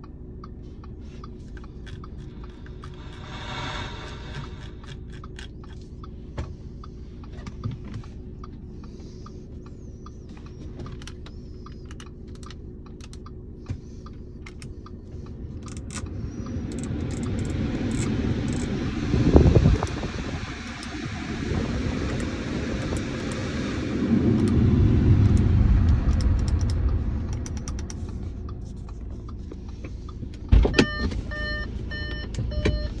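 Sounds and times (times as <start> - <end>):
blower fan rushing: 1.6 - 5.5, 13.9 - 33.0.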